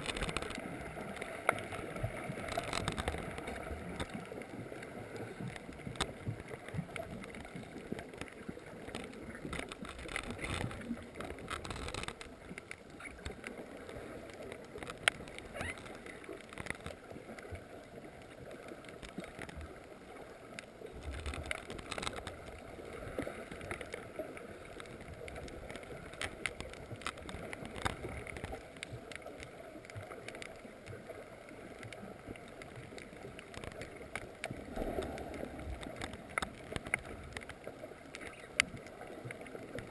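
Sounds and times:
faint underwater clicks: 0:00.0 - 0:39.9
underwater water noise: 0:00.0 - 0:39.9.

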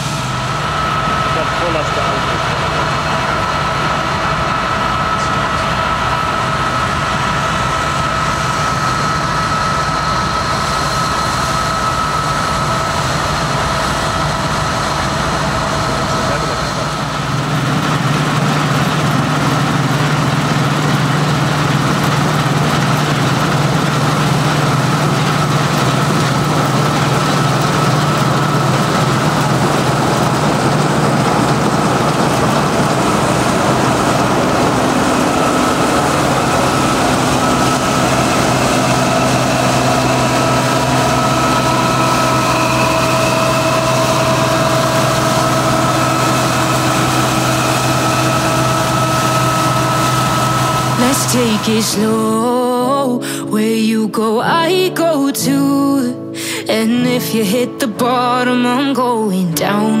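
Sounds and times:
combine harvester engine drone: 0:00.0 - 1:00.0
high whine: 0:00.0 - 1:00.0.

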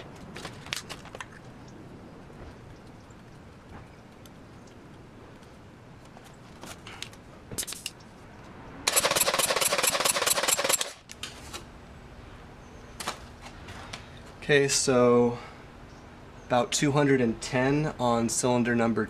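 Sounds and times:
engine cranking by starter motor: 0:08.9 - 0:11.0.

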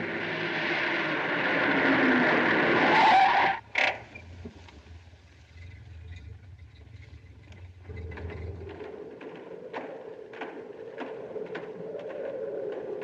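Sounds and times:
car tyres screeching: 0:00.0 - 0:08.5.

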